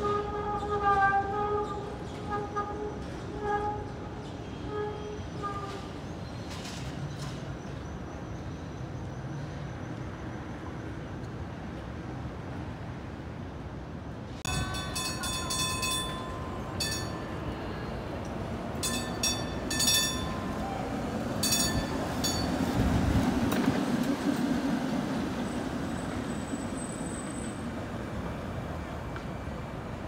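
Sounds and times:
streetcar rumbling on rails: 0.0s - 30.0s
streetcar gong ringing: 14.5s - 22.9s.

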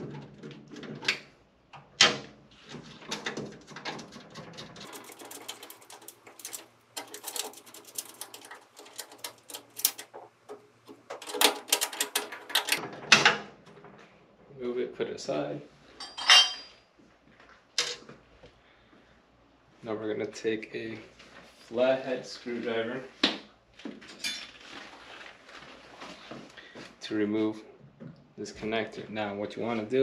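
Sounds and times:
screwdriver clicks and metallic rattles: 3.1s - 13.4s.

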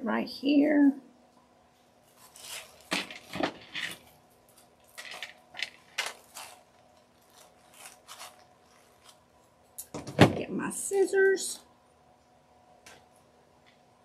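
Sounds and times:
paper filters rustling: 1.7s - 10.0s.

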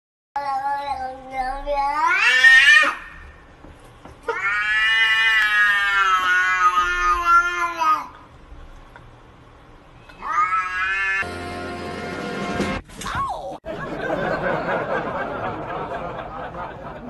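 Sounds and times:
cat yowling: 2.0s - 3.2s, 4.3s - 8.0s, 10.2s - 11.3s.

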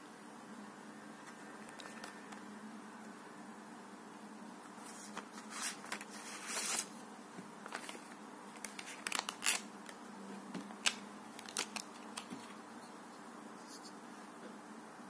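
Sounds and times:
plastic packaging crinkling: 7.6s - 10.0s, 10.7s - 12.6s.

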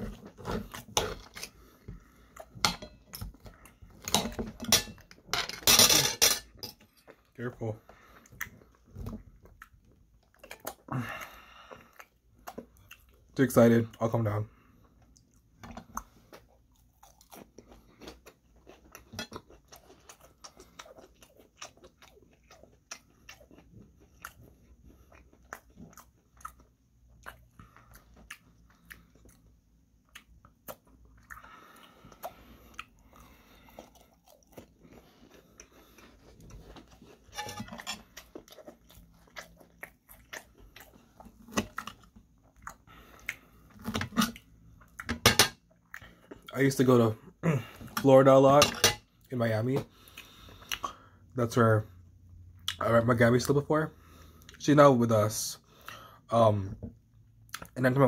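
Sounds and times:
person chewing crispy food: 7.0s - 13.9s, 14.8s - 48.0s.

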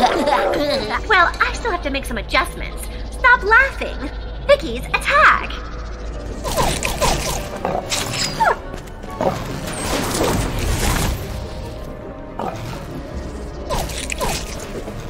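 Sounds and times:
action background music: 0.0s - 15.0s
cartoon slime guns firing: 6.4s - 7.5s.

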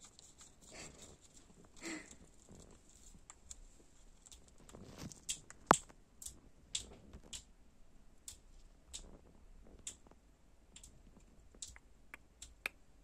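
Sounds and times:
parrot clicking: 11.6s - 12.8s.

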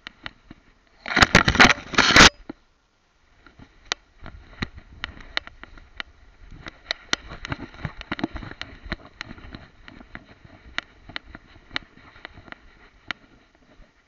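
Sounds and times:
rustling through long grass: 3.2s - 14.0s.

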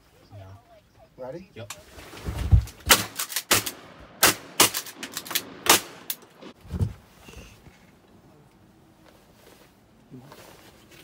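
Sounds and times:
shotgun blasts: 2.8s - 6.5s.

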